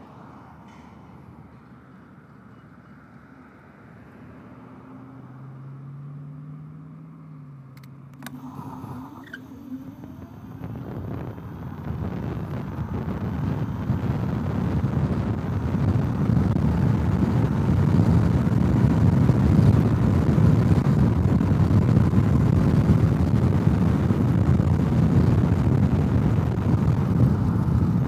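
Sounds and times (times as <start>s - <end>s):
wind buffeting microphone: 9.9s - 28.0s.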